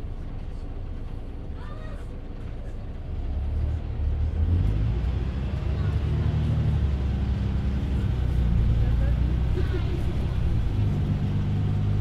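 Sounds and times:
bus engine running: 0.0 - 12.0
road noise rumble: 0.0 - 12.0.

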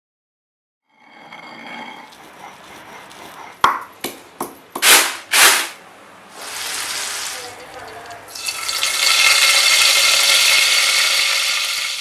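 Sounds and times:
stone pestle pounding in mortar: 2.4 - 5.5.

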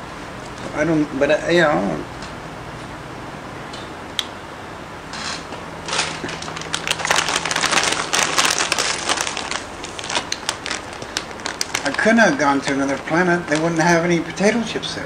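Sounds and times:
potato chips crunching: 5.8 - 13.8.

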